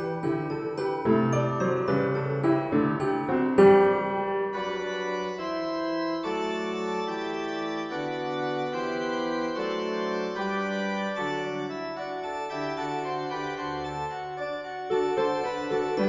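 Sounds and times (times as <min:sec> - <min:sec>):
slow organ-like chords: 0:04.5 - 0:16.0.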